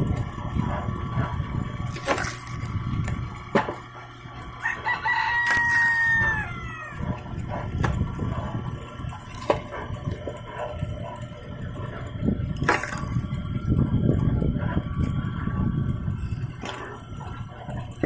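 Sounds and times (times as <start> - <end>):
log splitter humming: 0.0 - 18.0
wedge knocking splitting log: 0.2 - 4.1, 7.1 - 10.3, 11.9 - 13.2
rooster crowing: 4.6 - 7.2.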